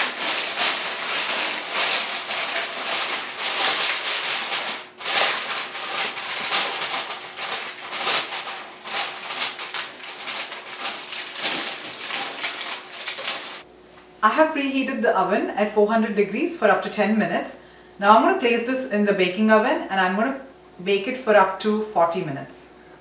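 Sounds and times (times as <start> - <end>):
aluminium foil crinkling: 0.0 - 13.7.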